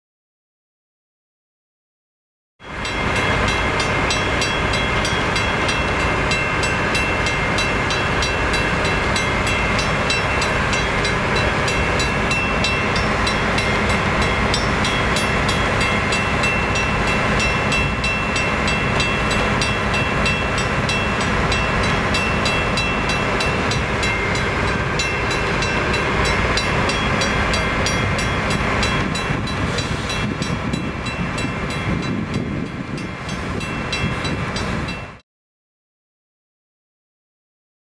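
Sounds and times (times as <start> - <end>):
diesel locomotive engine idling: 2.6 - 35.2.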